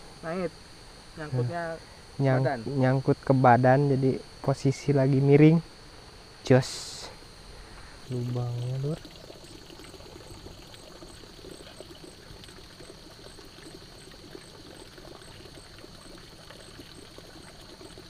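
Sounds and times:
water trickling and gurgling: 0:08.0 - 0:18.0.

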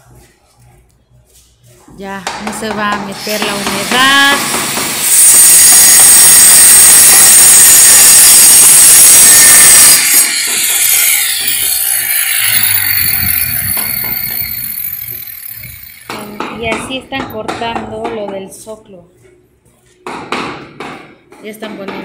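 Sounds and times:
power saw cutting tile: 0:03.2 - 0:16.3.

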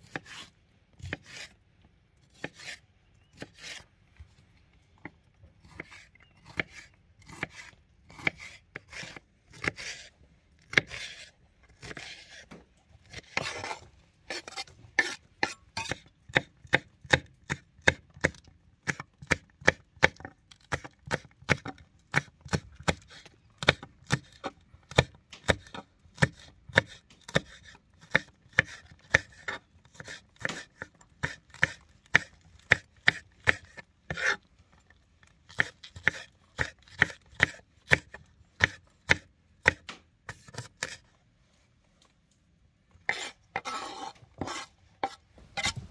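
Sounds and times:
knife slicing on cutting board: 0:00.0 - 0:01.5, 0:02.3 - 0:02.8, 0:13.1 - 0:16.0, 0:43.1 - 0:45.9.

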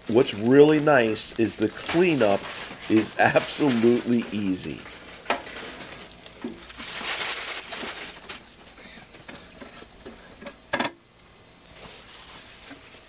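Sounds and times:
wiping with paper towel: 0:11.6 - 0:13.0.

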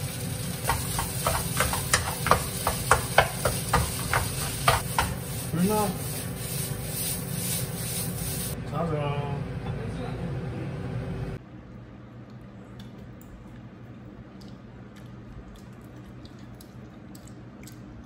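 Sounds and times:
food stirred in a wok: 0:00.0 - 0:08.6
faint chewing: 0:12.3 - 0:18.0.

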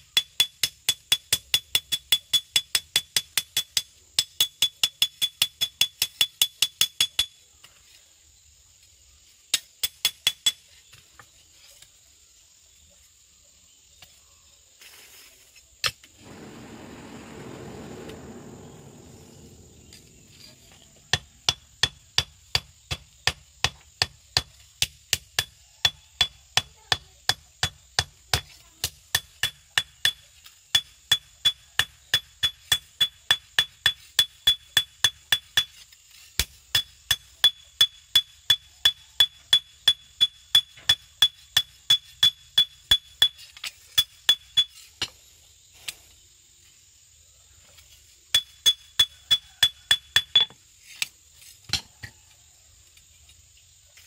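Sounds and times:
low rushing noise: 0:16.2 - 0:21.2.

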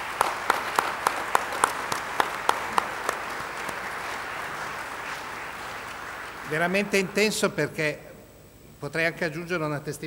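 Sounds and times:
loud claps: 0:00.0 - 0:07.4
audience applauding: 0:00.0 - 0:07.8.

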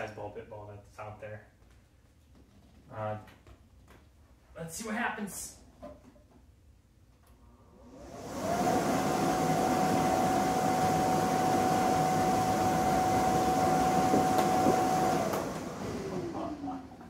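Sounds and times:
blower fan with high whine: 0:07.5 - 0:17.0.

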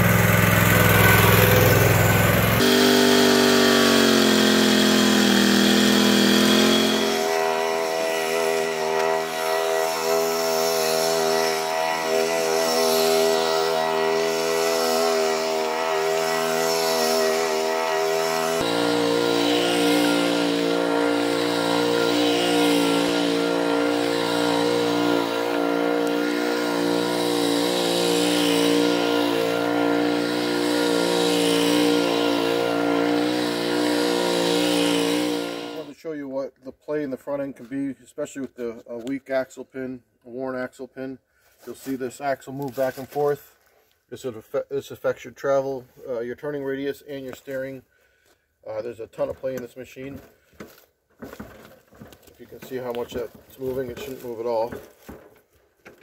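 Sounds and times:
garden tractor engine running: 0:00.0 - 0:35.9, 0:51.3 - 0:55.1.

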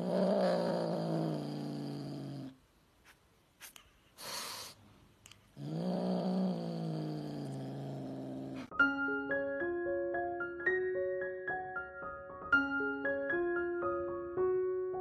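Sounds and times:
kitten growling: 0:00.0 - 0:02.6, 0:05.6 - 0:08.7
kitten hissing: 0:03.6 - 0:04.8.

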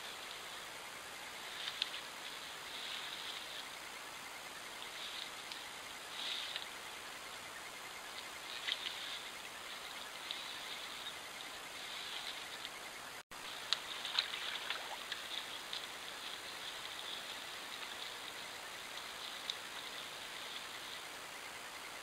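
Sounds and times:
steady hiss: 0:00.0 - 0:22.0
beaver dragging branch over sticks: 0:01.4 - 0:03.7, 0:08.5 - 0:12.7, 0:13.5 - 0:21.0
twigs crackling and snapping: 0:01.5 - 0:03.6, 0:08.5 - 0:09.2, 0:13.5 - 0:20.7.

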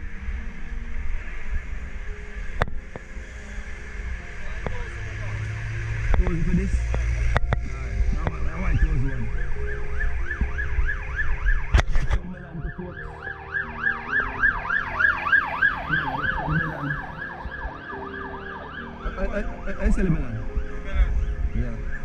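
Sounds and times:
electronic siren yelping: 0:08.4 - 0:19.4.

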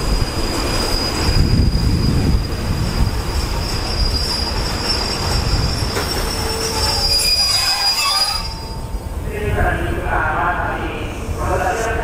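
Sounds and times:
train wheels squealing: 0:00.0 - 0:09.0
train rumble: 0:00.0 - 0:12.0.

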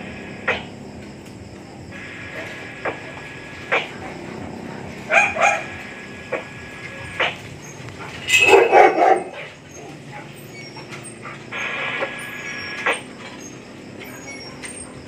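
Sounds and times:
dog barking: 0:05.0 - 0:05.8, 0:08.0 - 0:11.4.

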